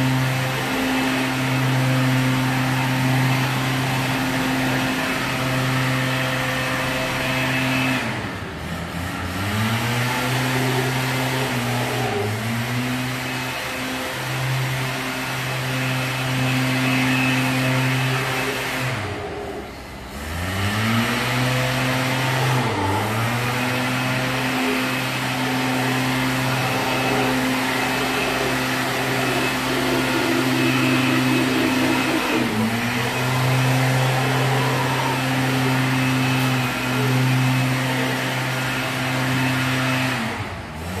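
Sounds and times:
howler monkeys roaring: 22.2s - 39.0s.

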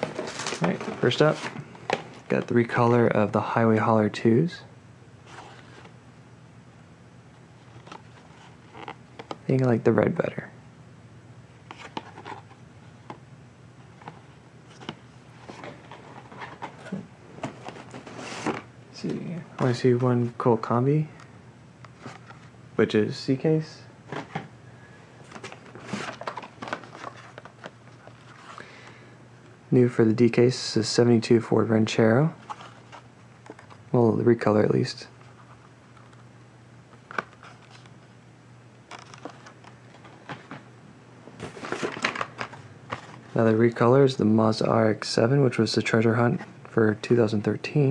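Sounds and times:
plastic blister packs rustling: 0.0s - 2.7s, 25.2s - 28.6s, 38.9s - 40.6s, 41.4s - 43.4s
card and plastic packaging rustling: 0.0s - 2.8s, 11.6s - 13.2s, 13.9s - 20.4s, 21.9s - 22.5s, 25.2s - 28.9s, 32.4s - 33.9s, 37.0s - 38.0s, 38.9s - 40.7s, 41.3s - 43.5s.

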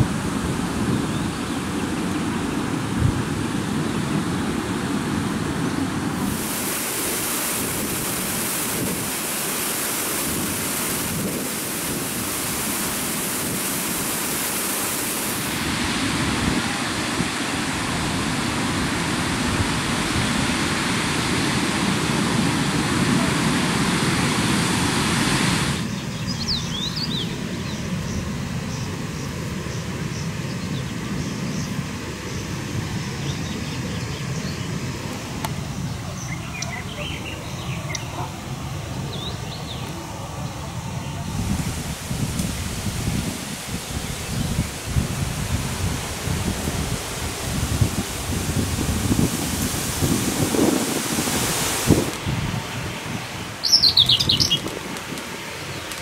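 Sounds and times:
water rushing over a weir: 0.0s - 25.9s, 33.8s - 56.0s
birds chirping: 25.8s - 32.6s, 35.7s - 41.3s, 52.8s - 54.8s.

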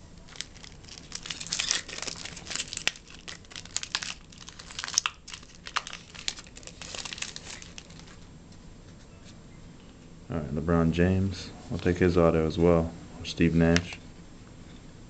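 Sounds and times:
foil wrapper crinkling and tearing: 0.1s - 8.2s.

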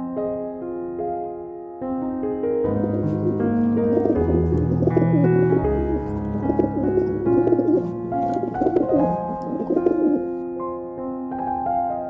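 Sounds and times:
piano music: 0.0s - 12.0s
pigeons cooing: 2.7s - 10.4s.

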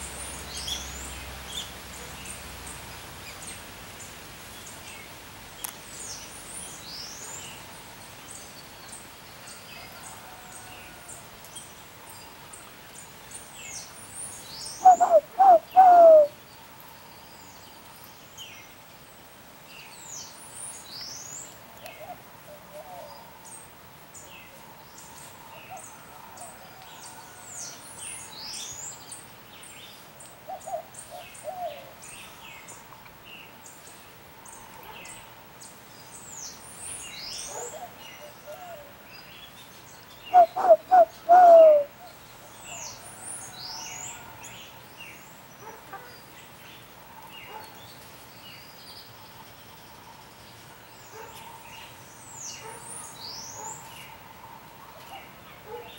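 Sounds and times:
small birds chirping: 12.5s - 18.8s, 28.2s - 43.0s
dove cooing: 14.8s - 16.4s, 40.3s - 42.0s.

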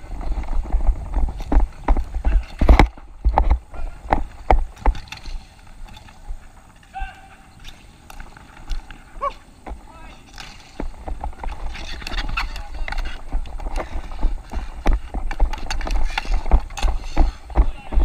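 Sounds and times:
hockey sticks clacking on ball: 0.3s - 18.0s
person shouting: 6.9s - 7.4s.

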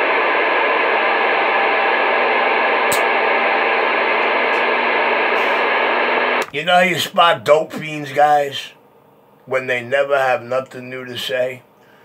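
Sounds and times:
radio static hiss: 0.0s - 8.8s
faint hum: 0.0s - 12.0s
sharp click: 2.9s - 3.1s.

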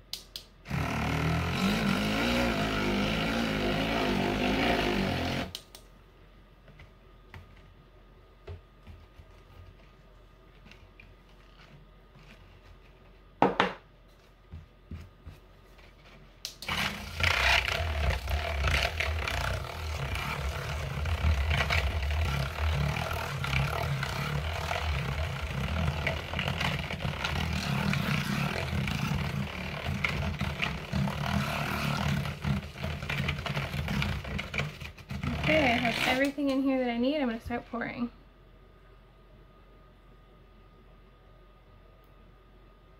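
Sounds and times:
stick blender running: 0.7s - 5.6s, 16.4s - 36.5s.

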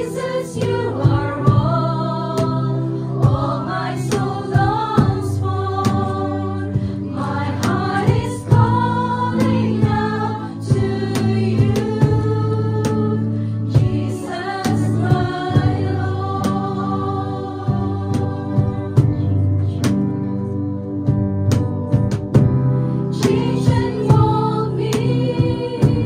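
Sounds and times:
women singing together: 0.0s - 19.8s, 23.1s - 26.0s
keyboard chords: 0.0s - 26.0s
low bass: 0.2s - 26.0s.

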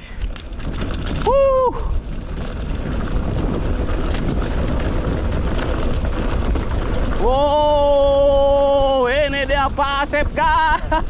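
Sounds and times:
bike rattling: 0.0s - 11.0s
wind rushing on microphone: 0.0s - 11.0s
tyre rumble on dirt: 0.3s - 8.9s.

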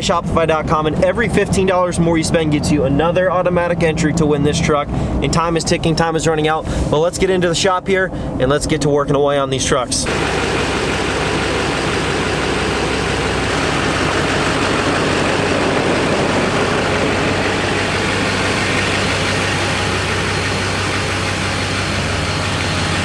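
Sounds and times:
truck engine idling: 10.0s - 23.0s.

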